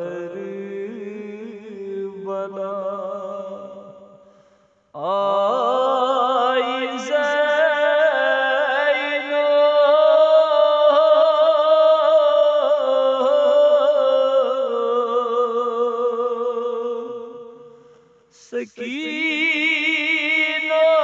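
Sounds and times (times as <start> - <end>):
man chanting a lament: 0.0 - 3.8, 5.0 - 17.5, 18.4 - 21.0.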